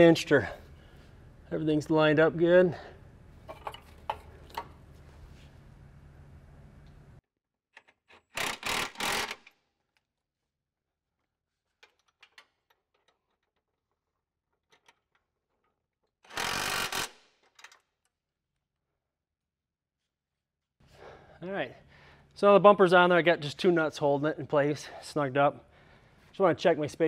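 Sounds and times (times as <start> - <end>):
steady background hum: 0.0 - 7.2
power tool bursts: 8.3 - 9.5, 16.3 - 17.2.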